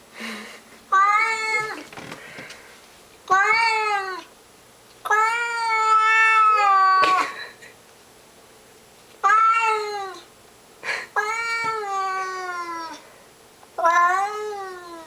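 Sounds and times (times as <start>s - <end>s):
cat yowling: 5.1s - 7.2s, 9.2s - 10.2s, 13.8s - 15.0s.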